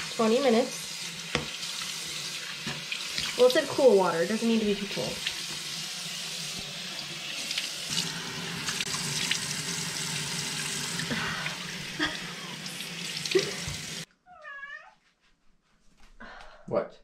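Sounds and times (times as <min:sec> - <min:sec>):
tap water running into sink: 0:00.0 - 0:14.1
water splashing on faces: 0:10.4 - 0:14.0
cat meowing: 0:14.2 - 0:15.0.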